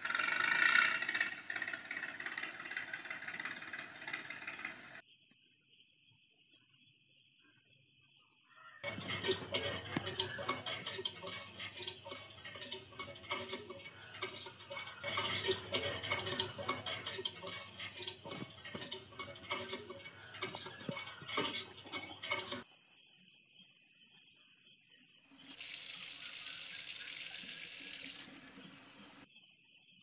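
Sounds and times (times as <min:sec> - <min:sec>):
toy hand pump clicking and rattling: 0:08.8 - 0:22.7, 0:25.5 - 0:28.3.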